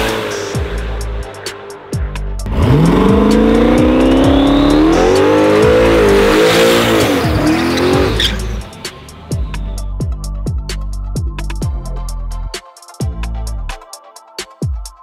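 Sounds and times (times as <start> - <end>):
car engine revving: 0.0 - 1.6, 2.4 - 9.7
electronic music with kick beat: 0.0 - 15.0
tires squealing: 2.5 - 9.3.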